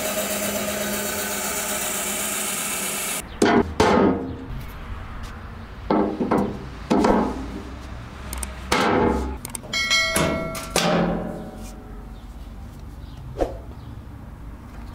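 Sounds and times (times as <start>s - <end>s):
short ringing chime: 9.7s - 10.8s
metal door clunking: 9.9s - 11.5s.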